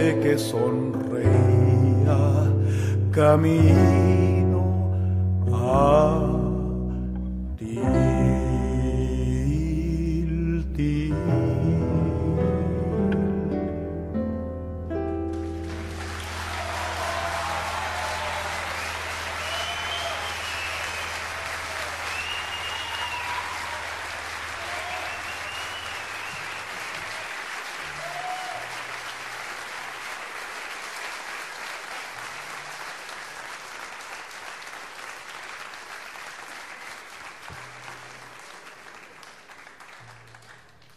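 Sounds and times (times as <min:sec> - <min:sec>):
audience applauding: 0:15.3 - 0:40.9.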